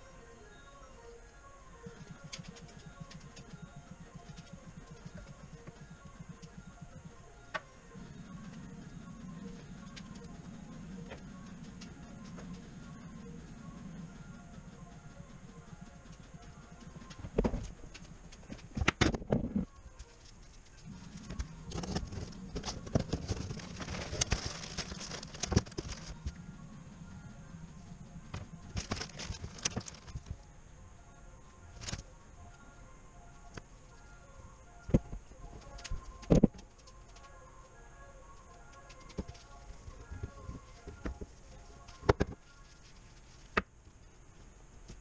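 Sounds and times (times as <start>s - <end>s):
faint background music: 0.0s - 45.0s
low steady hum: 0.0s - 45.0s
paper and plastic rustling: 19.5s - 26.3s, 28.8s - 30.3s.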